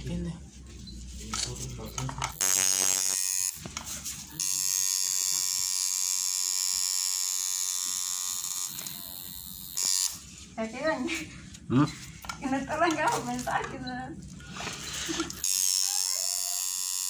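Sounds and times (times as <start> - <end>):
electric tattoo machine buzzing: 2.3 - 10.3, 15.3 - 17.0.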